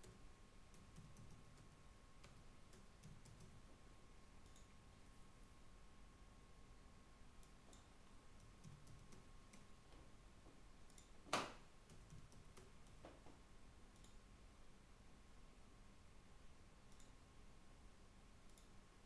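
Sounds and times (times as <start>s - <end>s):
keyboard typing: 0.0s - 3.6s, 7.4s - 9.7s, 11.9s - 13.0s.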